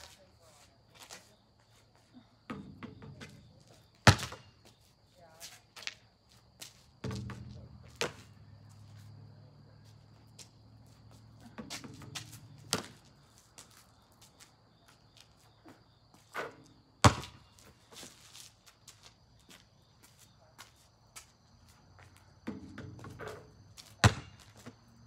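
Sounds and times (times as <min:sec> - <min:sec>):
basketball thudding: 0:02.5 - 0:04.5, 0:07.0 - 0:08.4, 0:11.5 - 0:13.1, 0:16.4 - 0:17.4, 0:22.4 - 0:24.6.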